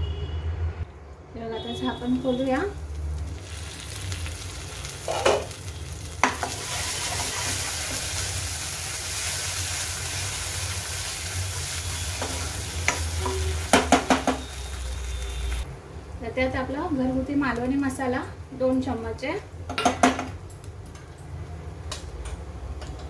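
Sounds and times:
paste sizzling in oil: 0:02.3 - 0:15.7
spatula scraping pan: 0:06.2 - 0:08.0.

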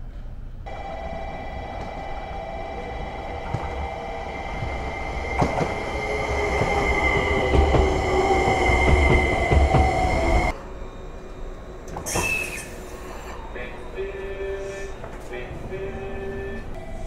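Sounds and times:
train wheels clacking on rails: 0:03.1 - 0:10.6
train wheels squealing: 0:03.7 - 0:15.1.

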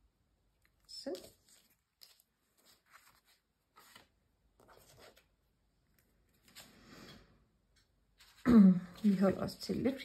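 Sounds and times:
paper cards rustling and sliding: 0:01.0 - 0:07.2, 0:08.2 - 0:09.8.

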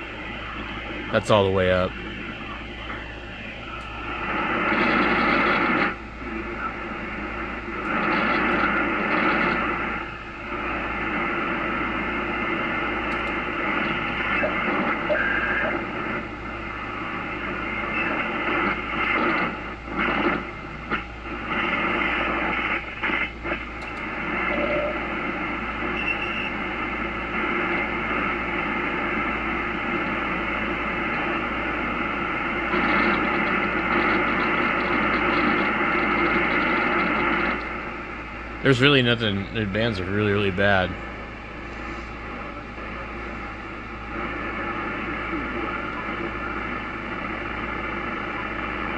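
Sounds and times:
shortwave radio static: 0:00.0 - 0:48.9
radio carrier whistles: 0:14.2 - 0:16.1, 0:17.7 - 0:19.3, 0:25.8 - 0:26.7.

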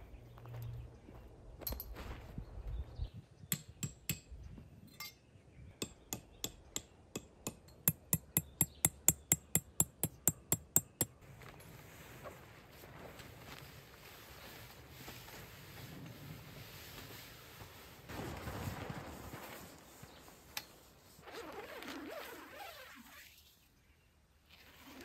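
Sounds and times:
hammer striking metal tent stake: 0:03.5 - 0:04.4, 0:05.8 - 0:11.2.

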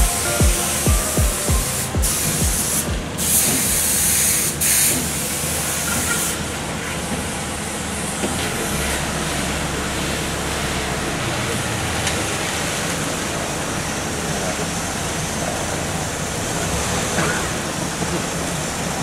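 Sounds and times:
pressure washer spray hissing: 0:00.0 - 0:06.4.

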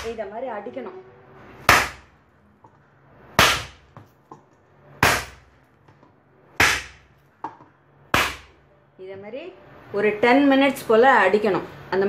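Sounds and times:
dough slapped into steel bowl: 0:06.6 - 0:08.5.

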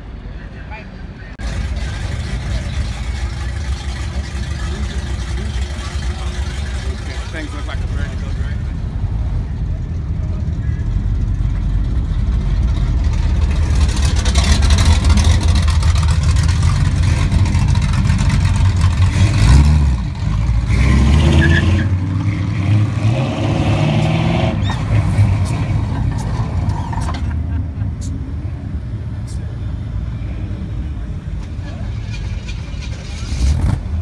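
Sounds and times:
car engines rumbling: 0:00.0 - 0:34.0
car engine revving: 0:01.4 - 0:09.4, 0:10.8 - 0:27.3.

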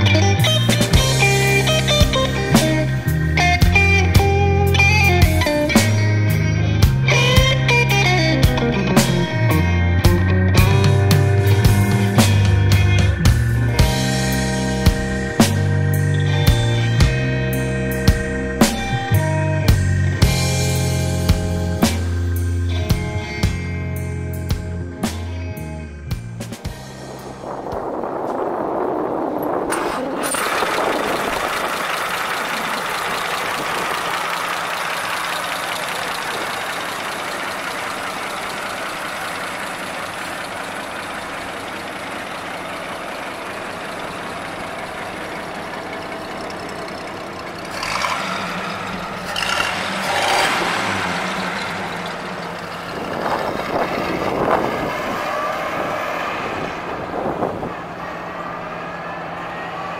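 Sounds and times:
car engine running: 0:00.0 - 0:59.9.

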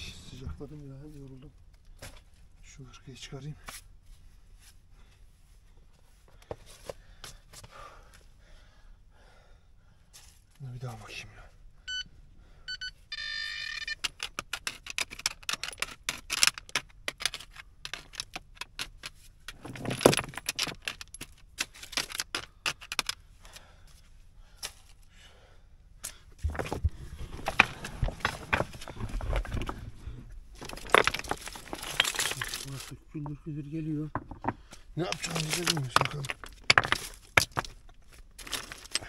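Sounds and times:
stones clinking and clattering: 0:13.8 - 0:23.2, 0:26.4 - 0:39.0.

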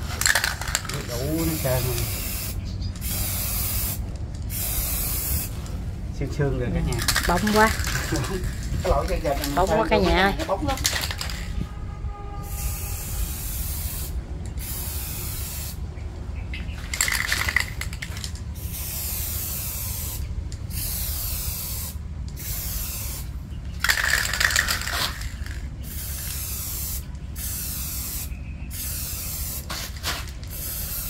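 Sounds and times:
aerosol spray can hissing: 0:01.4 - 0:05.6, 0:12.4 - 0:15.8, 0:18.6 - 0:23.3, 0:24.0 - 0:31.0.

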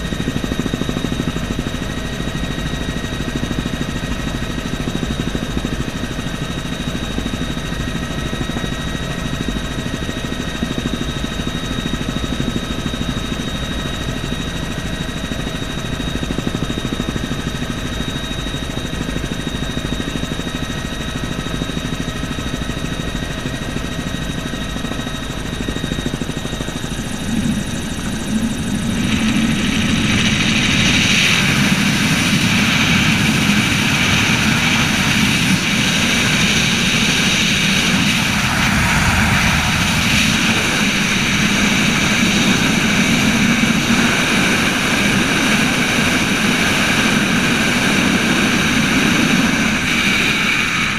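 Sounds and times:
helicopter engine and rotor whine: 0:00.0 - 0:50.9
rush of air: 0:26.9 - 0:42.2.

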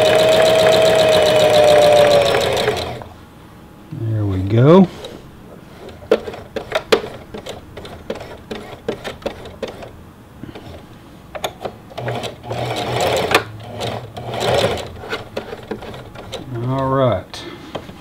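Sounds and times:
sewing machine motor hum: 0:00.0 - 0:03.1, 0:05.9 - 0:09.9, 0:11.9 - 0:16.5
sewing machine stitching: 0:00.0 - 0:03.1, 0:05.9 - 0:09.9, 0:11.9 - 0:16.5.

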